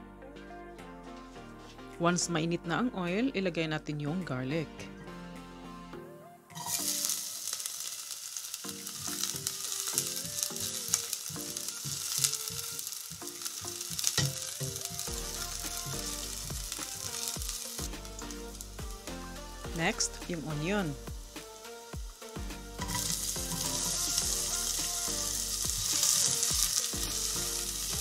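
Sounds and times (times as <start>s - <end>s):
garlic sizzling in oil: 6.6s - 28.0s
spatula stirring: 22.8s - 27.4s.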